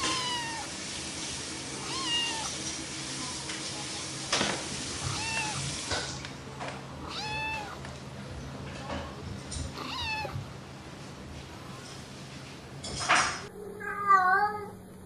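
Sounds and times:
cat meowing: 0:00.0 - 0:00.8, 0:01.8 - 0:02.6, 0:05.0 - 0:06.2, 0:07.0 - 0:07.8, 0:09.7 - 0:10.4, 0:13.8 - 0:14.8.

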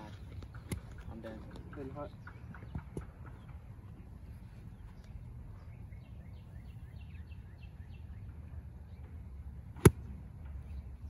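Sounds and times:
birds chirping: 0:00.0 - 0:11.0
golf club striking ball: 0:09.8 - 0:10.2.

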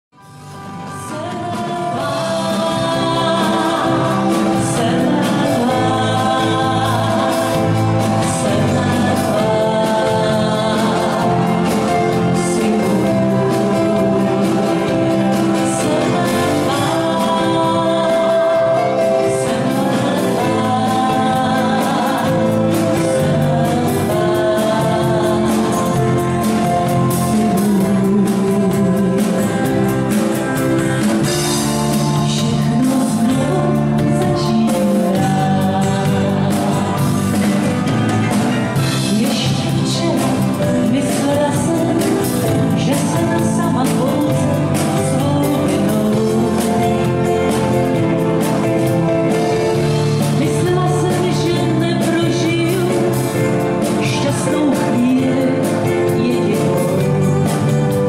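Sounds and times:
drums: 0:00.0 - 0:58.0
acoustic guitar: 0:00.1 - 0:58.0
woman singing lead: 0:00.2 - 0:58.0
men singing: 0:01.5 - 0:30.1, 0:31.2 - 0:37.8.

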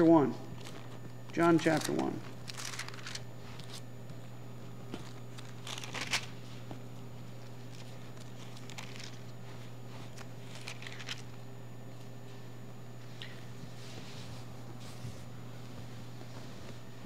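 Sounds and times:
steady low hum: 0:00.0 - 0:17.0
paper pages rustling: 0:01.6 - 0:03.8, 0:05.0 - 0:06.4, 0:07.5 - 0:09.3, 0:10.1 - 0:11.3.

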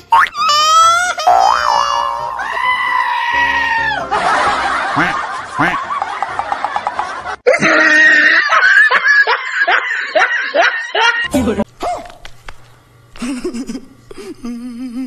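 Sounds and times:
pitched sound effect: 0:01.3 - 0:02.6, 0:03.3 - 0:05.8
pitched tone sliding down: 0:01.3 - 0:02.7, 0:03.3 - 0:05.3.

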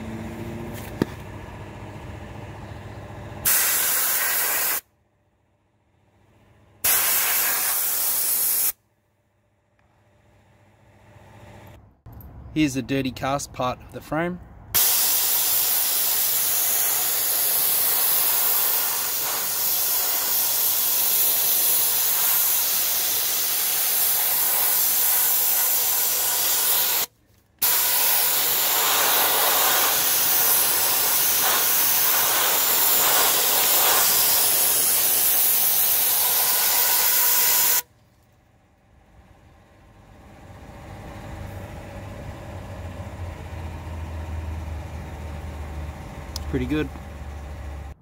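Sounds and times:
sandblaster gun hissing: 0:03.4 - 0:04.8, 0:06.8 - 0:08.8, 0:14.8 - 0:37.8.

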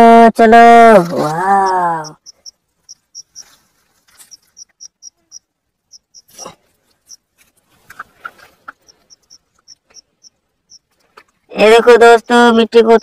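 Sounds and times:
cricket chirping: 0:01.5 - 0:07.3, 0:08.8 - 0:10.9.

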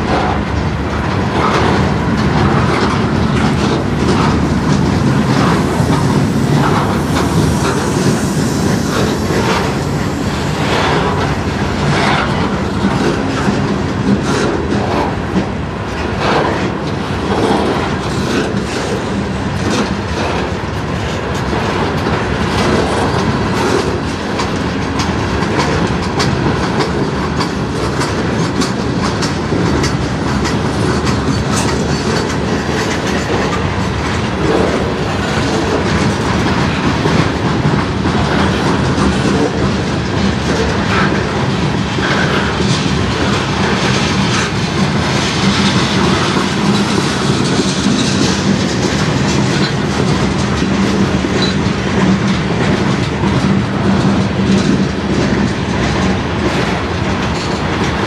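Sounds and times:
train wheels rumbling on rails: 0:00.0 - 0:58.0
wheels clacking over rail joints: 0:00.0 - 0:58.0.

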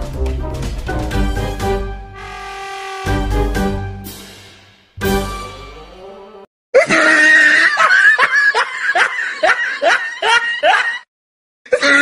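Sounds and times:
person laughing: 0:06.8 - 0:11.1.

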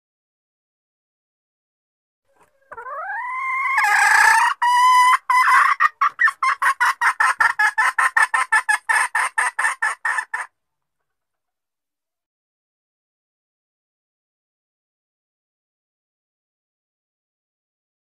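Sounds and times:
hen calling and clucking: 0:02.3 - 0:11.4.

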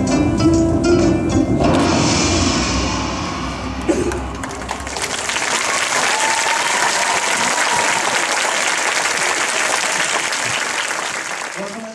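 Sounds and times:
audience applauding: 0:03.8 - 0:11.9.

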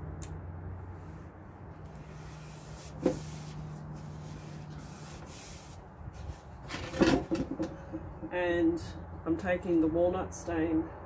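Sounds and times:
fingers rubbing tape on wood: 0:01.9 - 0:08.0.

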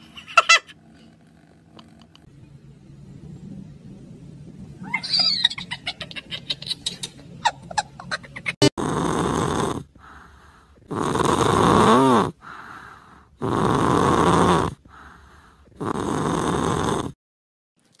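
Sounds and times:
cat snoring: 0:08.8 - 0:17.2
soft breaths: 0:09.4 - 0:11.2, 0:11.9 - 0:13.4, 0:14.7 - 0:15.9.

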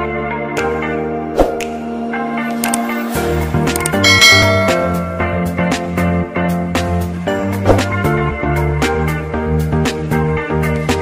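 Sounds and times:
layered sustained intro music: 0:01.1 - 0:08.5.

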